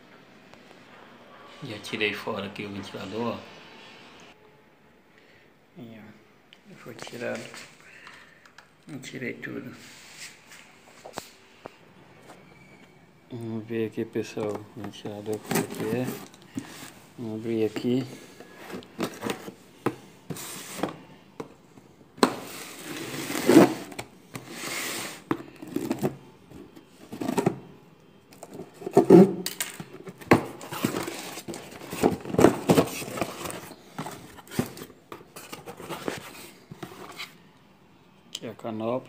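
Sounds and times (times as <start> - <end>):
cardboard scraping tearing and rustling: 22.5 - 26.1, 30.5 - 37.3.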